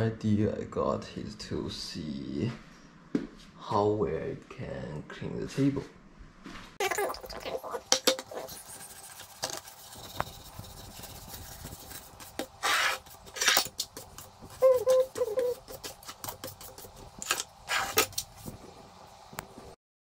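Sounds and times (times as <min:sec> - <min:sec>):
dish brush scrubbing table: 0:06.9 - 0:18.6.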